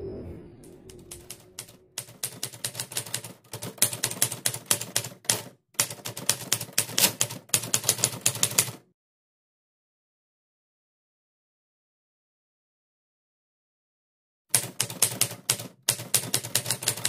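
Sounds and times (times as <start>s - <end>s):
typewriter keys clacking: 0.9s - 8.8s, 14.5s - 17.0s.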